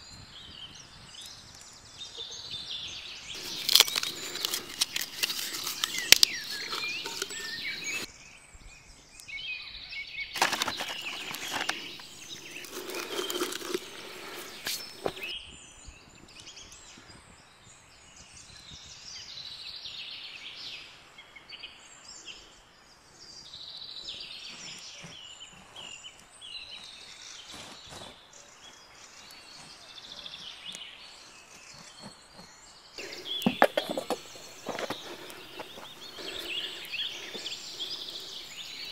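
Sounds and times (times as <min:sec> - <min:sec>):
small birds chirping: 0:03.2 - 0:08.1, 0:10.4 - 0:15.3, 0:28.6 - 0:38.9
rustling crackling noise: 0:03.4 - 0:08.1, 0:10.4 - 0:15.3, 0:33.0 - 0:38.9.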